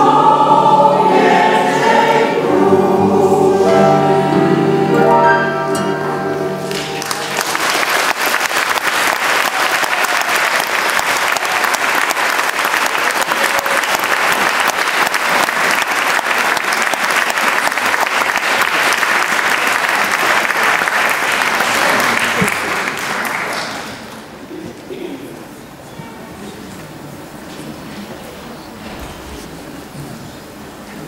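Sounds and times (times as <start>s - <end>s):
choir singing chord: 0.0s - 6.8s
audience applauding: 6.6s - 24.4s.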